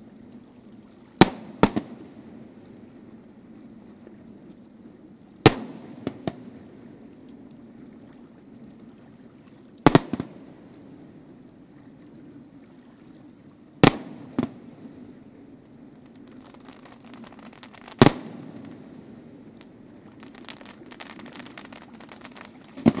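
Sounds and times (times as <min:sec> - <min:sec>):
smaller firework cracks: 0:01.2 - 0:02.0, 0:05.4 - 0:06.4, 0:09.8 - 0:10.4, 0:13.8 - 0:14.6, 0:16.0 - 0:23.0
firework shells bursting: 0:20.2 - 0:23.0.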